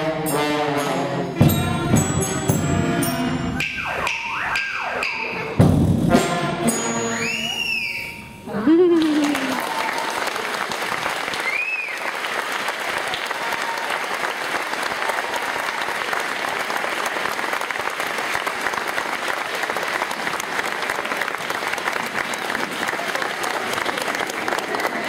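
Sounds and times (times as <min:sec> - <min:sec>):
person whistling: 0:07.1 - 0:08.4, 0:11.4 - 0:12.0
audience clapping: 0:08.8 - 0:25.0.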